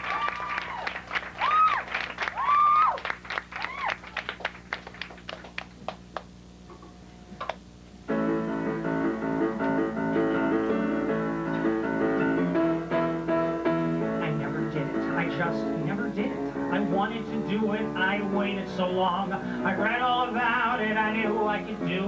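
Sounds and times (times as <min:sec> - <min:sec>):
audience applause: 0:00.0 - 0:06.3
piano playing: 0:08.0 - 0:22.0.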